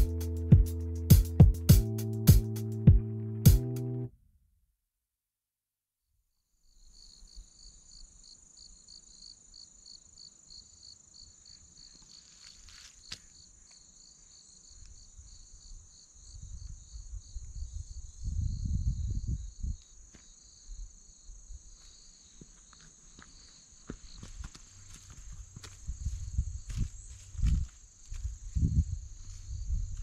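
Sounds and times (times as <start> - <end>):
insects buzzing and chirping: 6.6 - 30.0.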